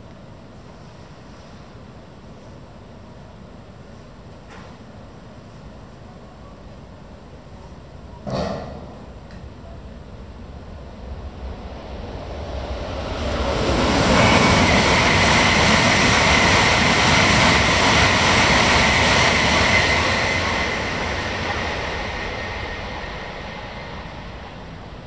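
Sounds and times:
high-speed train passing: 9.0 - 25.0
steady high whine: 10.0 - 25.0.

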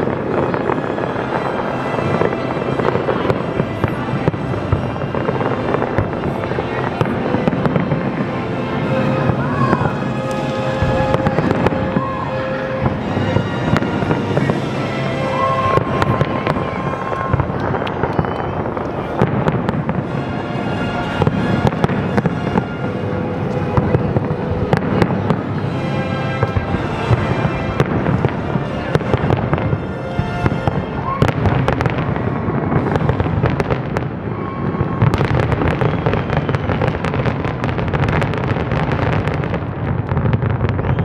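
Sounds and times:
music playing: 0.0 - 33.3
fireworks bursting and crackling: 0.0 - 41.0.

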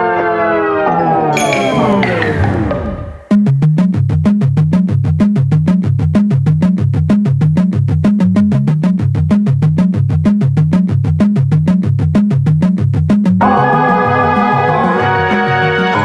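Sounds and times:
electronic music with synth bass: 1.4 - 3.4.

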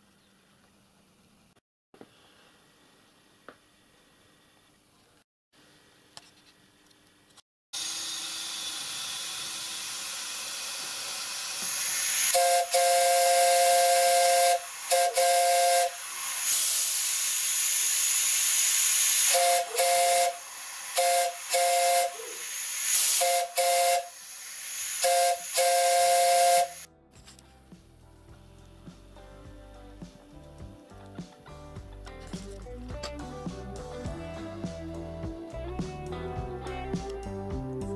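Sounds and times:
hiss of escaping air: 11.0 - 26.9.

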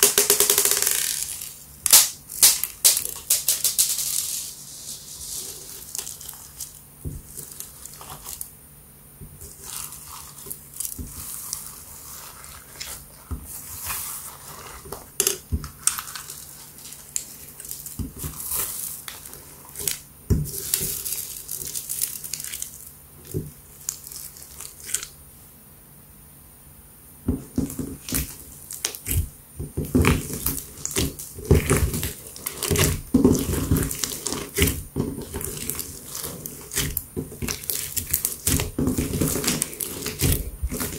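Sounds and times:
beads crackling and clicking: 0.0 - 4.6, 30.1 - 40.9
hands squishing slime: 9.3 - 25.2, 27.3 - 40.9.

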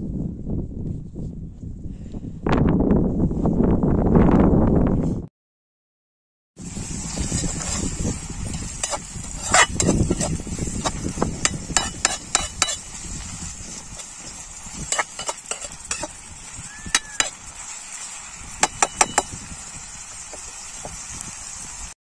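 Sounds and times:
faint sizzle of onions frying: 6.6 - 22.0
knife scraping onions in metal pan: 7.1 - 16.2
knife clicking against pan: 11.4 - 12.8.

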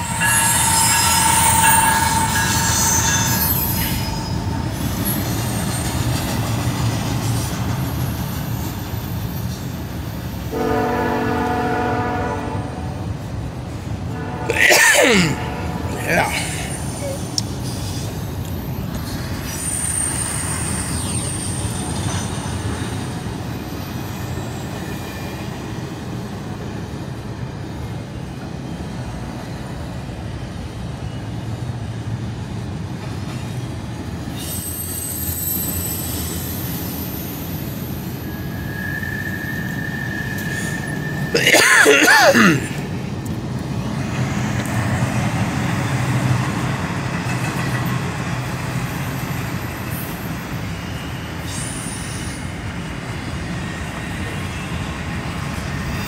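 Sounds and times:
high-pitched wheel squeal: 0.0 - 6.0, 34.4 - 41.3
train wheels rumbling on rail: 0.0 - 56.0.

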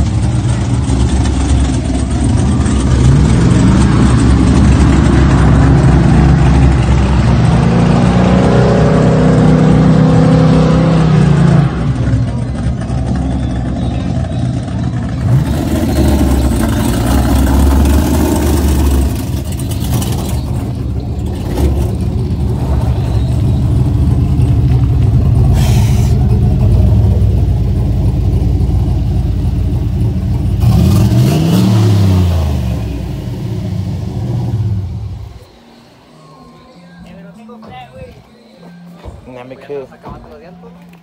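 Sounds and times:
truck engine running loudly: 0.0 - 41.0
brief hiss: 25.5 - 26.3.

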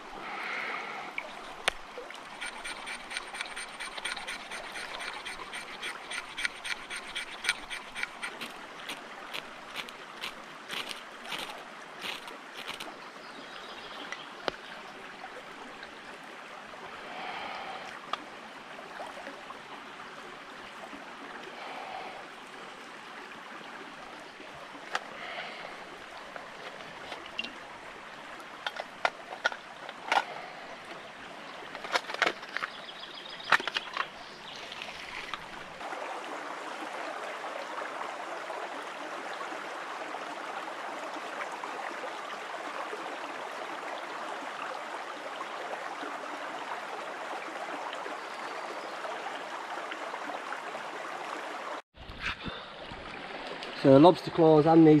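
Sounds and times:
stream running over stones: 0.0 - 55.0.

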